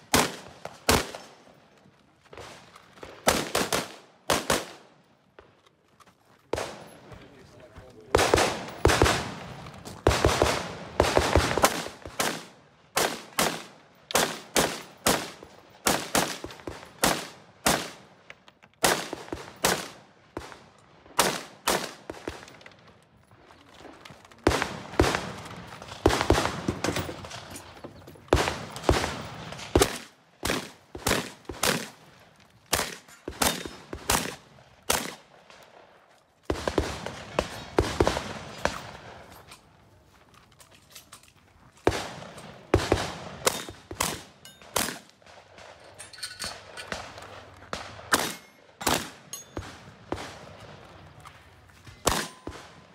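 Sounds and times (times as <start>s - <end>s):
gunshots in quick pairs: 0.0s - 1.3s, 3.2s - 4.8s, 8.1s - 18.0s, 21.2s - 22.5s, 24.4s - 32.0s, 32.7s - 35.5s, 41.9s - 45.8s, 46.9s - 50.6s, 52.0s - 52.9s.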